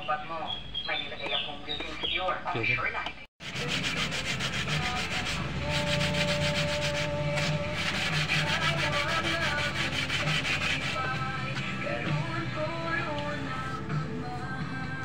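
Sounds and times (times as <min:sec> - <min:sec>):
sandpaper scraping plastic: 0:03.4 - 0:11.1.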